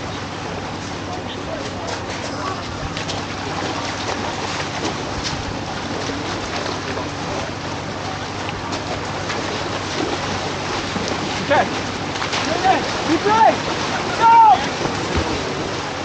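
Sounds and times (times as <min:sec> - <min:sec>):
faint voices: 0:00.0 - 0:03.6, 0:11.4 - 0:15.4
rushing outdoor noise: 0:00.0 - 0:16.0.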